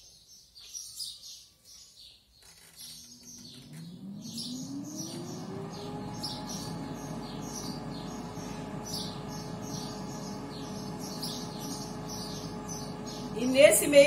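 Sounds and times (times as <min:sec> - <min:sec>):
small birds chirping: 0:00.0 - 0:14.0
air fryer fan humming: 0:03.0 - 0:14.0.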